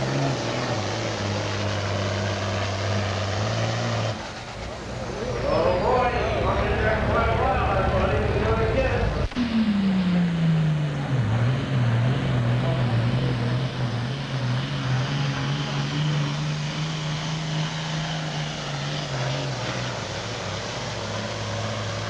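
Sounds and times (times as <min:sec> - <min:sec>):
tractor diesel engine at full power: 0:00.0 - 0:22.0.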